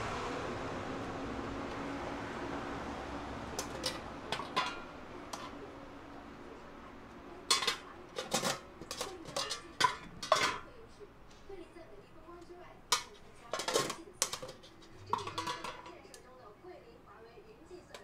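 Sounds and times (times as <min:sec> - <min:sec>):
dishes and utensils clattering: 0:03.6 - 0:05.7, 0:07.3 - 0:11.6, 0:12.9 - 0:16.2.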